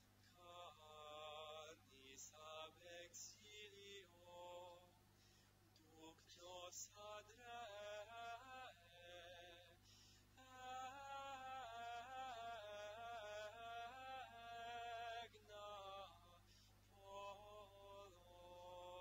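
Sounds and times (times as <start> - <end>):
faint liturgical singing: 0.0 - 19.0.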